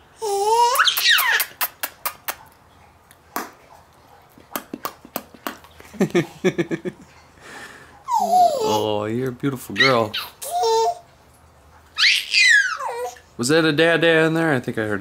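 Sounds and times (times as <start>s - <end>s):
baby giggling: 0.2s - 2.3s, 8.1s - 8.9s, 9.8s - 11.0s, 12.0s - 13.2s
mouth clicks: 0.8s - 3.6s, 4.4s - 5.7s.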